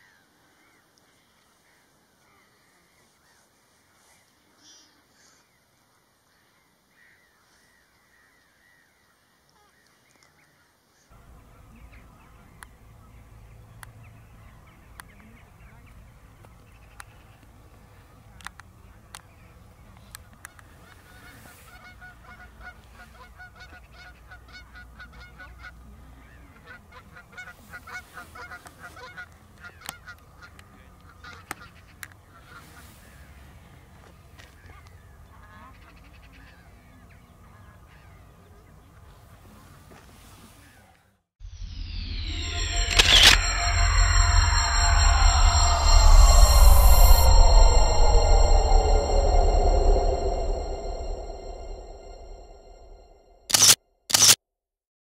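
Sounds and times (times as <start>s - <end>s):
low wind rumble: 43.4s - 53.2s.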